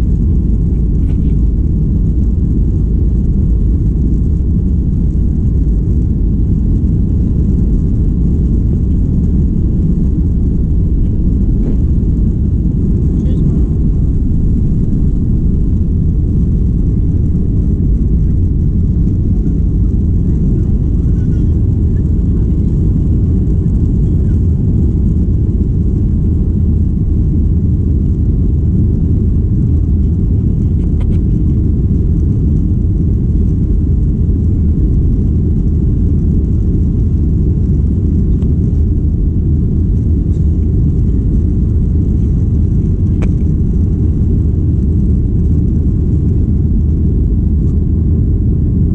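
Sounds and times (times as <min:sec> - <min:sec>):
airliner cabin rumble: 0:00.0 - 0:48.9.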